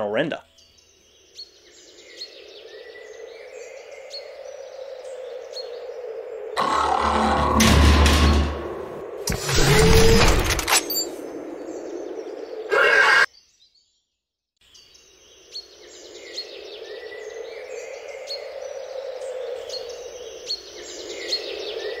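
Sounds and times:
birds chirping: 0.0 - 22.0
sci-fi mechanical noise: 6.6 - 11.9
sound-effect ambience: 6.6 - 13.2.

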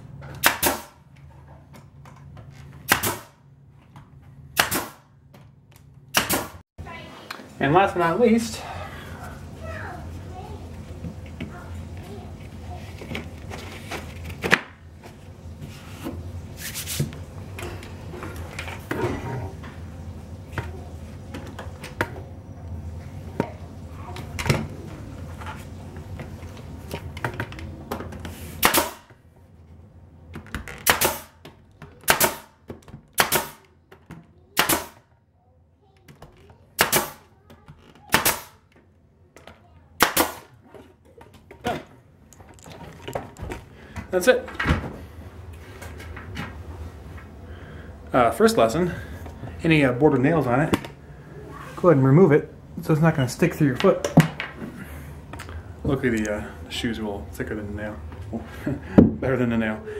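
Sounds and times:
hammer striking wood: 6.1 - 6.5, 28.6 - 29.0, 33.2 - 33.6.

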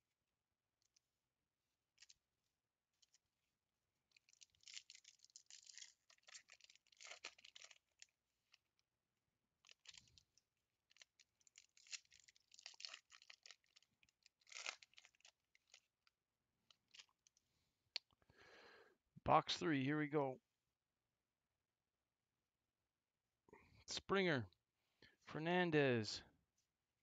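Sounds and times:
wrapper crinkling and tearing: 4.1 - 8.7, 9.6 - 16.1, 16.7 - 17.3.

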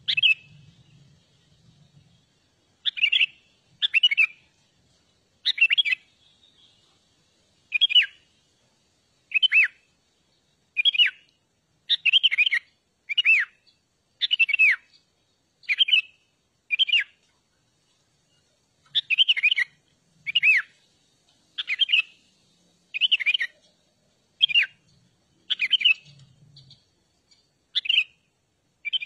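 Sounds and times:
bird calling: 0.0 - 1.1, 2.8 - 4.5, 5.4 - 7.0, 9.3 - 9.8, 11.9 - 15.0, 15.6 - 17.2, 18.8 - 20.8, 21.6 - 22.2, 22.9 - 23.8, 24.4 - 27.0, 27.8 - 28.2.

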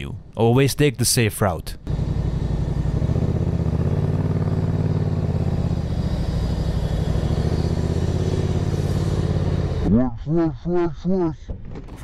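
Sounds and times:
motorcycle engine at low revs: 1.8 - 9.9.

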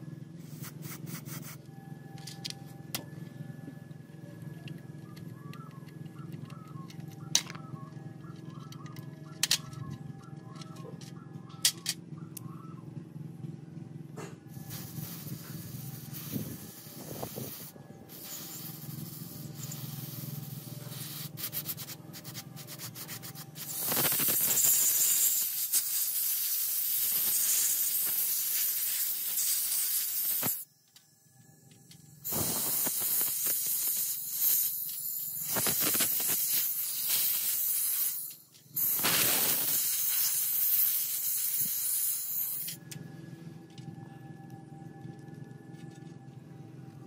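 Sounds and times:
aerosol spray hiss: 0.4 - 1.6, 14.6 - 30.6, 32.3 - 34.8, 35.4 - 38.2, 38.8 - 42.7.

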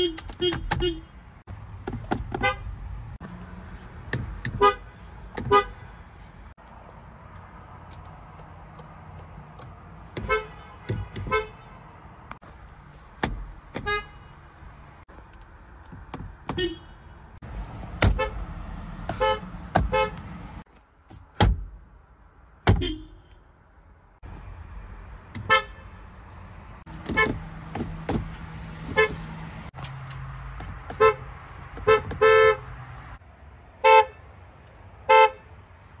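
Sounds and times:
car horn toots: 0.0 - 1.1, 5.4 - 5.8, 10.2 - 11.8, 13.8 - 14.3, 19.1 - 20.3, 22.7 - 23.4, 25.4 - 25.9, 31.8 - 32.7
car horns tooting: 0.0 - 1.2, 2.2 - 2.8, 4.5 - 5.8, 10.1 - 11.9, 13.7 - 14.4, 16.4 - 17.2, 18.0 - 20.4, 22.6 - 23.4, 25.3 - 26.1, 26.9 - 27.5, 28.8 - 29.5, 30.9 - 32.8, 33.8 - 34.2, 35.0 - 35.5.

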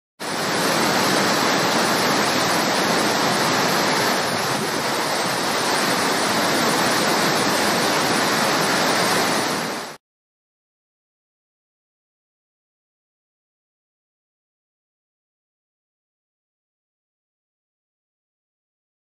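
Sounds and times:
waterfall rushing: 0.2 - 10.0.

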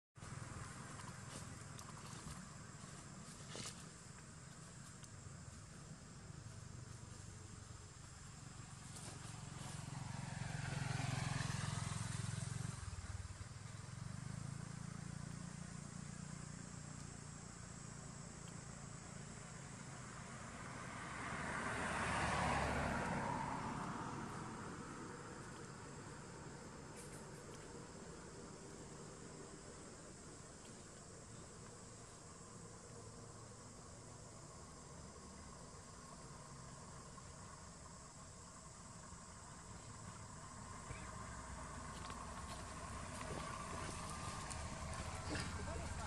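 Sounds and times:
vehicle engine hum: 0.2 - 46.0
vehicle rushing past: 7.7 - 16.6, 19.7 - 30.4, 31.8 - 46.0
low uneven rumble: 23.7 - 46.0.

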